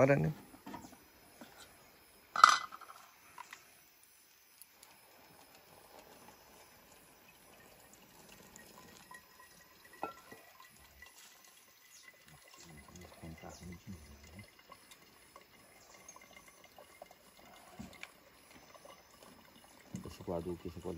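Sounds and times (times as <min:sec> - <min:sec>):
water trickling into coffee filter: 0:00.0 - 0:20.9
metal pot clanking: 0:02.4 - 0:03.0, 0:09.0 - 0:11.2.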